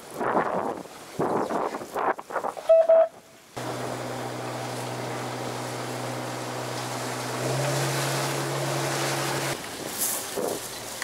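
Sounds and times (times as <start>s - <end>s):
wind on microphone: 0.0s - 3.0s
boat engine droning: 3.6s - 9.7s
spray rushing from hull: 3.6s - 11.0s.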